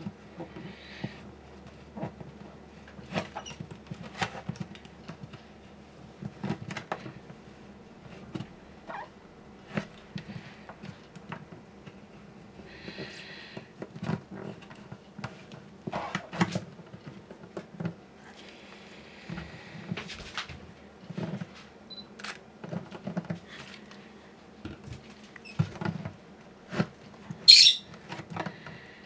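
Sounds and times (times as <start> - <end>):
short high squeak: 27.5 - 27.8.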